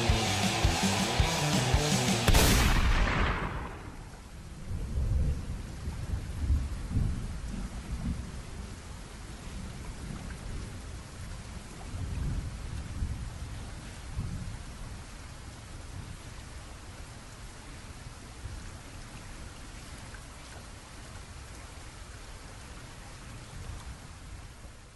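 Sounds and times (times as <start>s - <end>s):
steady rain: 0.0s - 24.9s
thunder rumbling: 2.2s - 8.2s.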